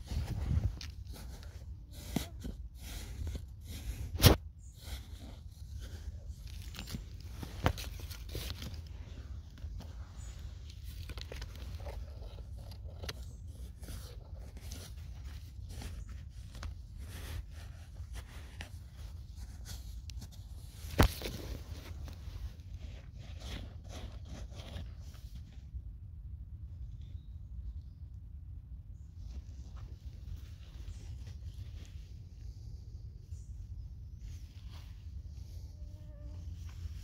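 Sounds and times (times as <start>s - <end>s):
hand scraping sandy soil: 0.0s - 25.6s.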